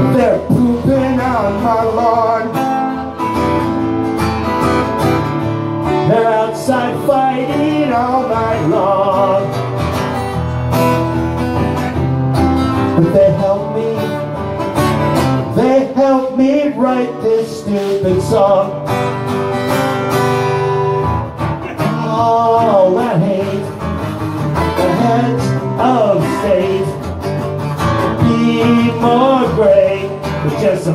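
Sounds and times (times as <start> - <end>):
man singing: 0.0 - 3.5, 5.8 - 10.0, 12.8 - 19.3, 21.5 - 30.9
strummed acoustic guitar: 0.0 - 30.9.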